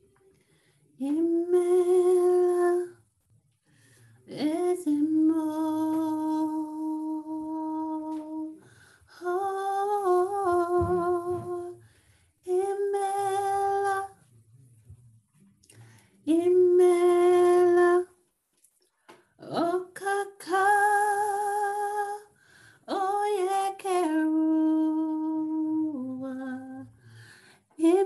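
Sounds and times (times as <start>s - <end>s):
woman breathing: 0.3s - 1.0s, 3.6s - 4.3s, 8.6s - 9.1s, 11.8s - 12.4s, 22.3s - 22.9s, 26.9s - 27.8s
woman singing unaccompanied: 1.0s - 3.1s, 4.3s - 14.3s, 16.2s - 18.2s, 19.4s - 27.0s, 27.8s - 28.0s.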